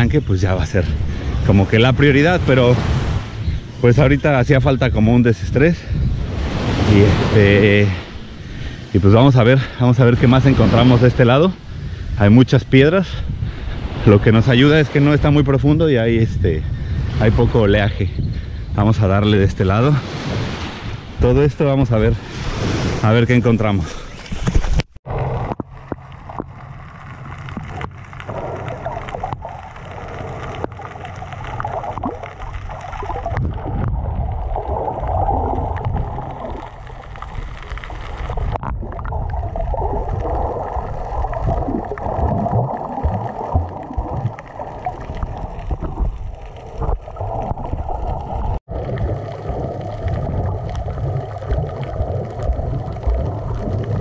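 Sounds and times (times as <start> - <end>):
underwater rumbling and gurgling: 0.0 - 12.1, 24.2 - 54.0
faint underwater clicks: 24.2 - 54.0.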